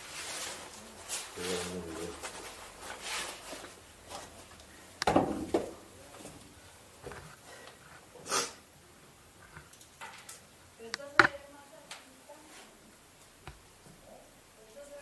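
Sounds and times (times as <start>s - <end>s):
faint shuffling: 0.0s - 5.0s, 5.7s - 8.2s, 11.4s - 13.0s.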